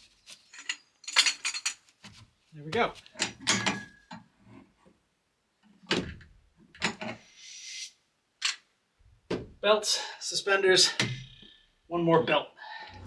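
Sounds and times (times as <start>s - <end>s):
short scraping hiss: 7.2s - 8.0s.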